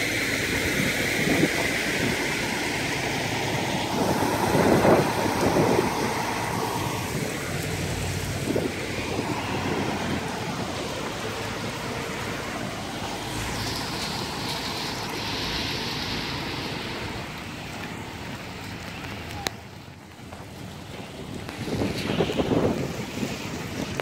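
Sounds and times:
high hiss: 0:00.0 - 0:17.8
wind and rain rushing: 0:00.0 - 0:24.0
wind buffeting microphone: 0:00.0 - 0:24.0.

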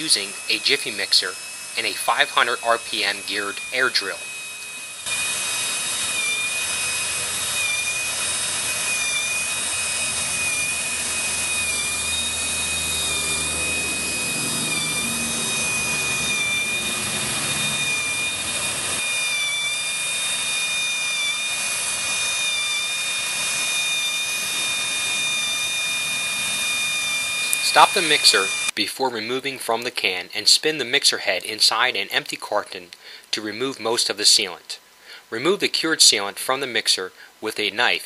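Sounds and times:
air drill hissing and whining: 0:00.0 - 0:28.8.

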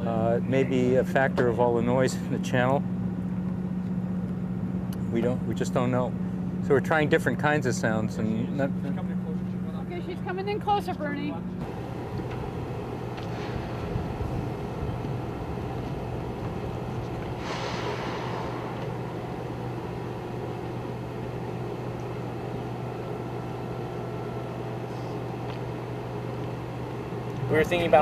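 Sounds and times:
boat engine droning: 0:00.0 - 0:28.0
short rushing noise: 0:17.3 - 0:20.3.

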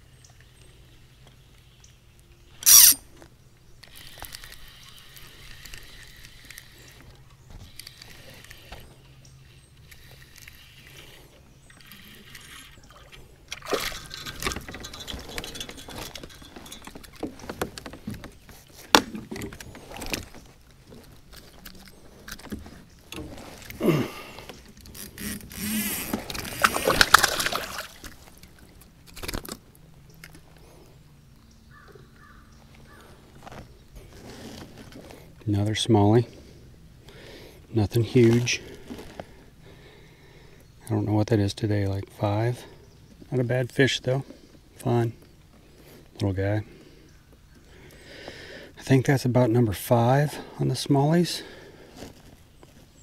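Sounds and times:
fishing reel reeling: 0:02.6 - 0:03.0, 0:03.8 - 0:07.0, 0:07.7 - 0:08.9, 0:09.8 - 0:13.2, 0:24.9 - 0:27.1
water splashing around kayak: 0:26.0 - 0:28.6
fish splashing: 0:26.2 - 0:28.4.

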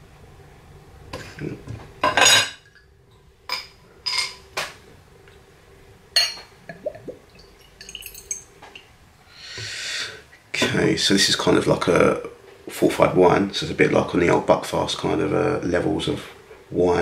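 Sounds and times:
glass clinks on table: 0:06.2 - 0:06.5.

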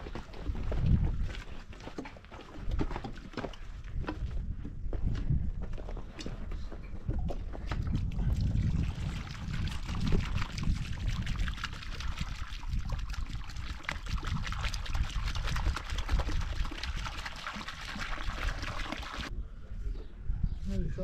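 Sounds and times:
water pouring onto earth: 0:08.1 - 0:19.3.

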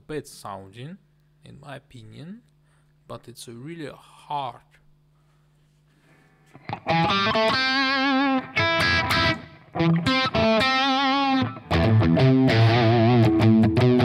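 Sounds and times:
faint amp hum: 0:00.0 - 0:14.0
overdriven electric guitar chords: 0:06.5 - 0:14.0.

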